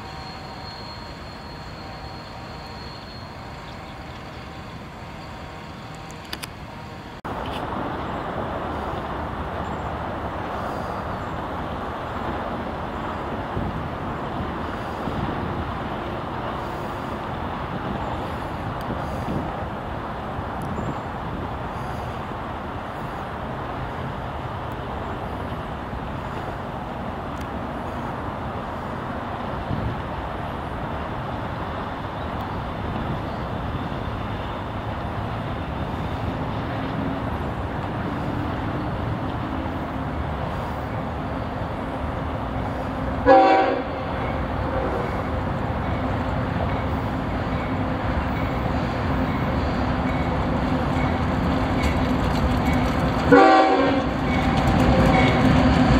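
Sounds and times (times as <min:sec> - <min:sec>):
locomotive air horn toot: 0:00.0 - 0:04.8, 0:43.2 - 0:45.4, 0:53.3 - 0:55.4
diesel locomotive rumble: 0:00.0 - 0:55.9.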